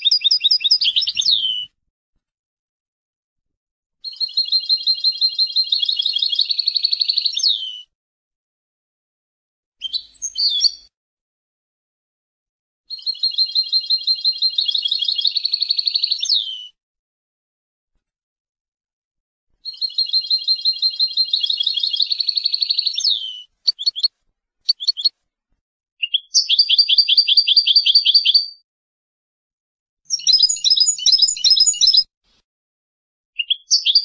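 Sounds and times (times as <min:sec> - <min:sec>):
bird call: 0:00.0 - 0:01.7, 0:19.7 - 0:24.1, 0:24.7 - 0:25.1, 0:30.1 - 0:32.1
goldfinch twittering trills: 0:30.1 - 0:32.0.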